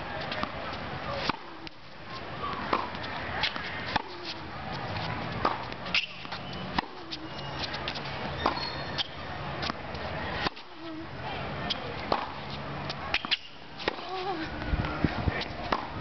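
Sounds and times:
tennis ball bouncing on court: 2.4 - 4.4, 5.0 - 9.8, 11.7 - 16.0
tennis ball hit by rackets: 2.4 - 4.4, 5.3 - 9.8, 10.4 - 10.7, 11.7 - 12.4, 13.1 - 14.3, 15.4 - 16.0.

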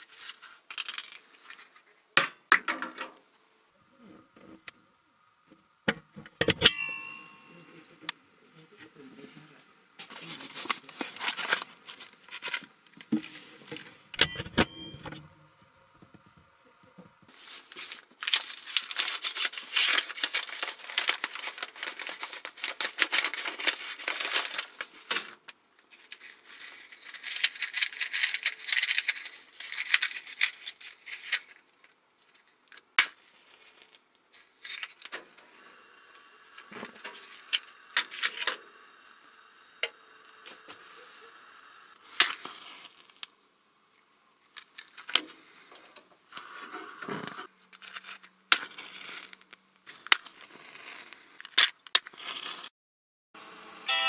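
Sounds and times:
matches rattling in matchbox: 0.0 - 1.8, 17.6 - 32.8, 47.7 - 52.7
plastic wrapping crinkling: 10.0 - 13.6, 17.3 - 35.1.

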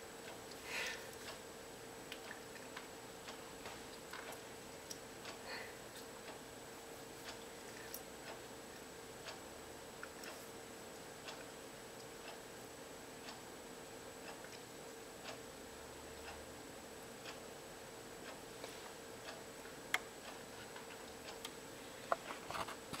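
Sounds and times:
constant low hum: 0.0 - 23.0
faint ticking: 7.2 - 13.5.

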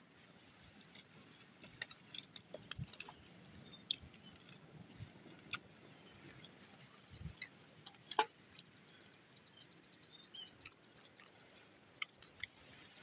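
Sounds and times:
faint bird chirp: 3.1 - 4.5, 8.5 - 13.0.

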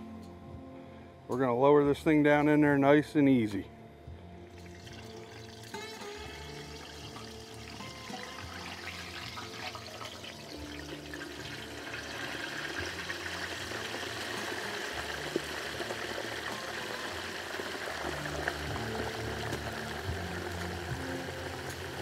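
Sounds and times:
hot oil bubbling and sizzling: 4.6 - 22.0.

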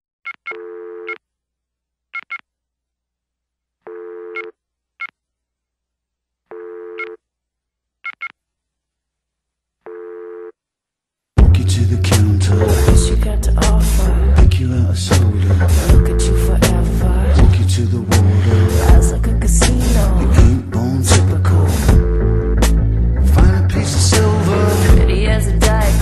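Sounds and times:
phone buzzing tones: 0.3 - 1.2, 3.8 - 5.1, 6.5 - 7.2, 9.8 - 10.6, 21.9 - 22.6
loud music: 11.4 - 26.0.

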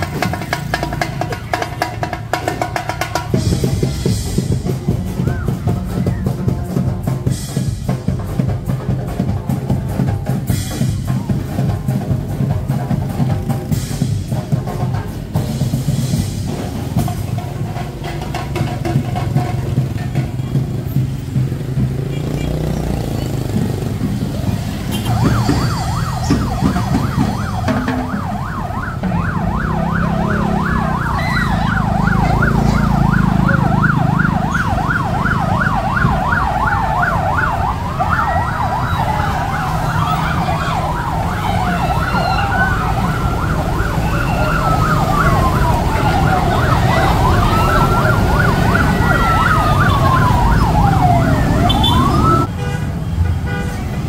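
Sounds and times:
siren wail rising and falling: 24.3 - 52.5
siren yelp warbling: 24.8 - 52.5.

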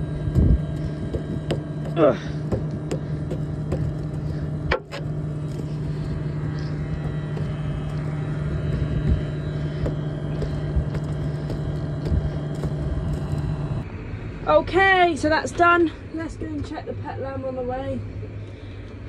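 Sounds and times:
tractor engine idling: 0.0 - 13.8.

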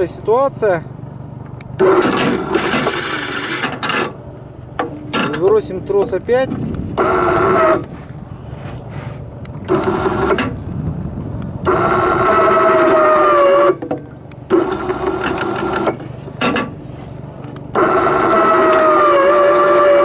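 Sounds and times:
electric winch motor whining: 1.8 - 4.3, 7.0 - 7.9, 9.6 - 10.7, 11.6 - 20.0.

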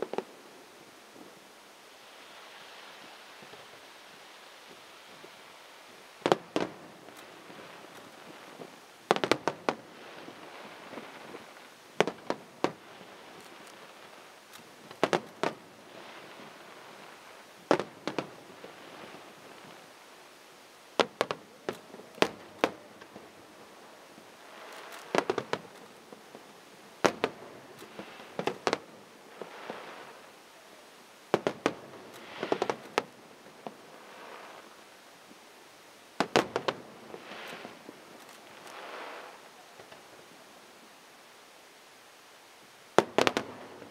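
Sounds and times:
firework crackling: 0.0 - 43.9
firework shells bursting: 6.0 - 19.8, 21.0 - 30.2, 31.3 - 34.5, 36.2 - 40.1, 43.0 - 43.9.

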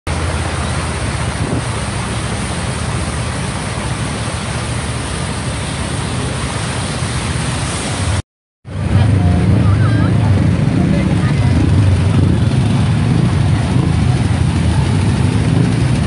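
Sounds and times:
traffic on wet street hiss: 0.1 - 16.0
wind buffeting microphone: 0.2 - 2.8, 8.7 - 16.0.

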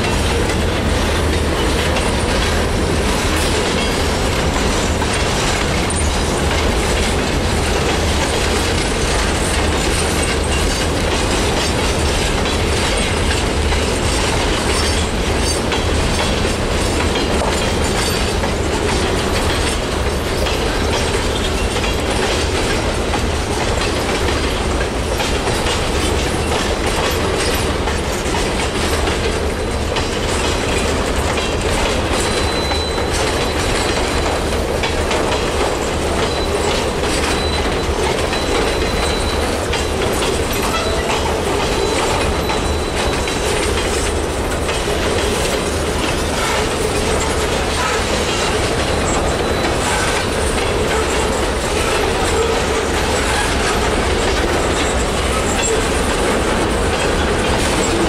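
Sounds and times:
clicking over rail joints: 0.0 - 58.0
steel wheels rumbling on rail: 0.0 - 58.0
high wheel squeal: 32.2 - 34.0, 35.8 - 44.1, 45.3 - 58.0.

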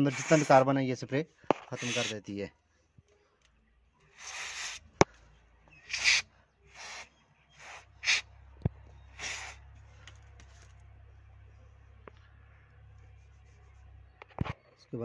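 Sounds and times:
aerosol spray hissing: 0.0 - 0.6, 1.8 - 2.2, 4.2 - 4.9, 5.9 - 8.2, 9.2 - 9.6
low steady hum: 4.8 - 15.0.

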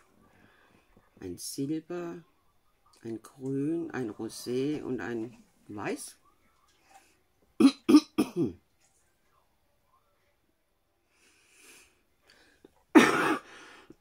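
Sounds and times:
woman coughing: 7.6 - 8.6, 12.9 - 13.6.

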